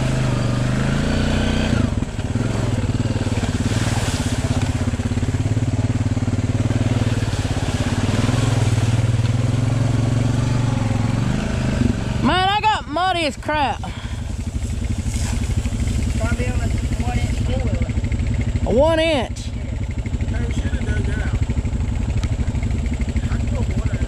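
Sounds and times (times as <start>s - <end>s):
atv engine under throttle: 0.0s - 24.0s.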